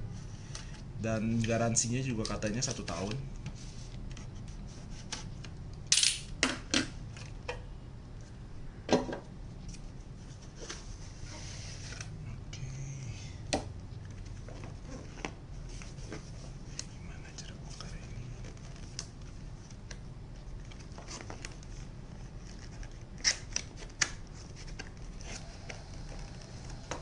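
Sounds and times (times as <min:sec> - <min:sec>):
soft handling rustle: 0:13.9 - 0:26.9.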